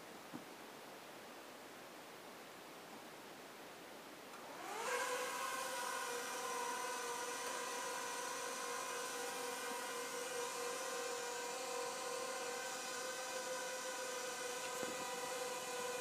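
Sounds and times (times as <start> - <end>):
drone propellers whining: 4.4 - 16.0.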